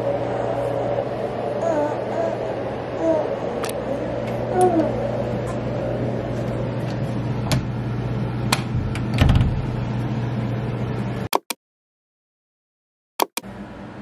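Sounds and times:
low hum: 0.0s - 11.3s
door shutting with soft thump: 9.1s - 9.7s.

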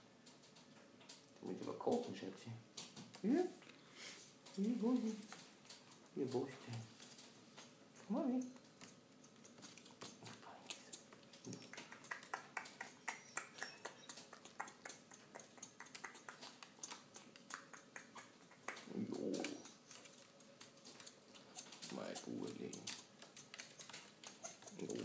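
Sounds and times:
parrot clicking: 8.4s - 25.0s.

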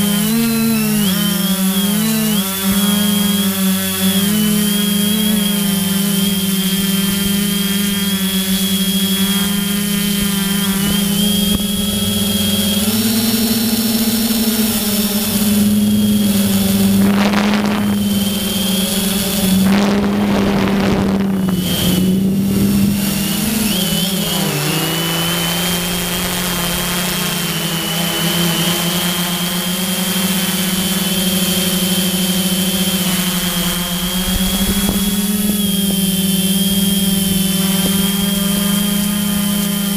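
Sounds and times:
model aircraft motor whine: 0.0s - 39.9s
rushing noise: 11.0s - 27.6s.

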